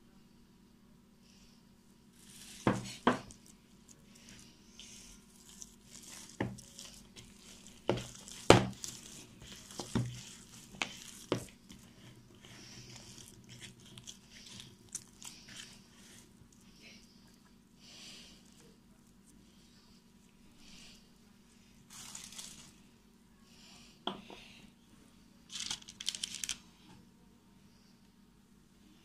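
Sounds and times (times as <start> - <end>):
hand kneading dough: 2.1 - 21.0.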